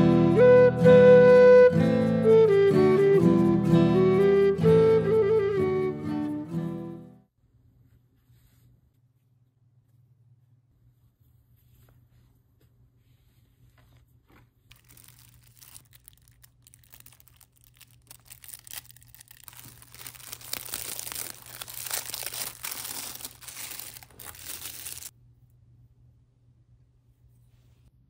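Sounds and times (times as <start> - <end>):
crinkling and rustling: 11.5 - 25.1.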